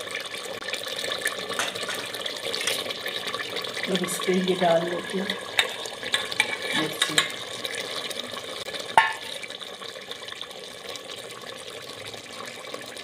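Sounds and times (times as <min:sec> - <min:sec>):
gravy bubbling and sizzling: 0:00.0 - 0:13.0
plate knocking against pot: 0:09.0 - 0:09.3.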